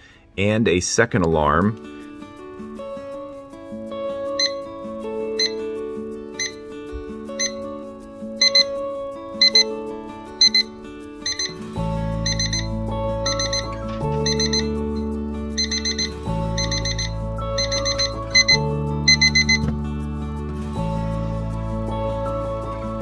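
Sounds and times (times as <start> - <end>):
high-pitched electronic alarm beeps: 4.4 - 4.6, 6.4 - 6.6, 7.4 - 7.6, 8.4 - 8.7, 9.4 - 9.7, 10.4 - 11.6, 12.2 - 19.7.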